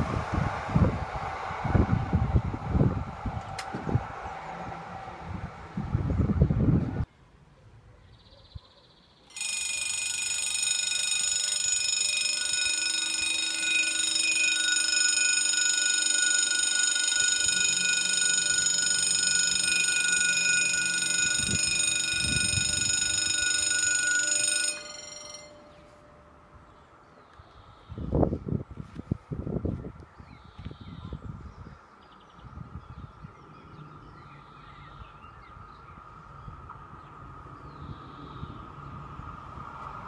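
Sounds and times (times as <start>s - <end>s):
level crossing warning bell: 9.3s - 27.1s.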